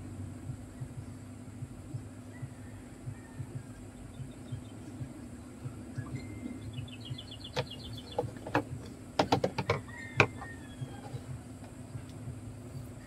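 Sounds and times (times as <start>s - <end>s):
steady low hum: 0.0s - 13.0s
bird chirping trill: 0.5s - 9.2s
knocks and clicks on wooden table: 7.6s - 10.4s.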